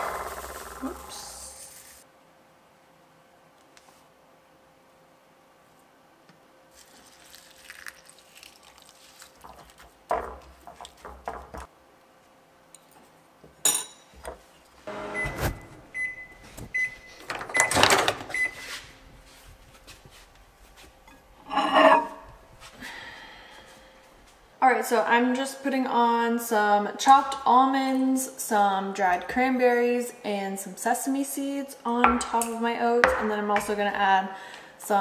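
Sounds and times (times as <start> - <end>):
kitchen knocks and clatters: 9.5 - 11.7
microwave keypad beeps: 14.9 - 18.6
spoon scraping ceramic bowl: 21.4 - 22.2.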